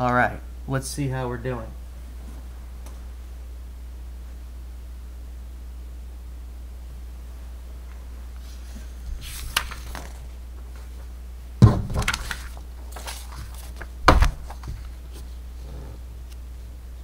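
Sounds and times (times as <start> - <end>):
steady low hum: 0.0 - 17.0
paper sheets rustling: 8.4 - 11.1, 11.9 - 15.4.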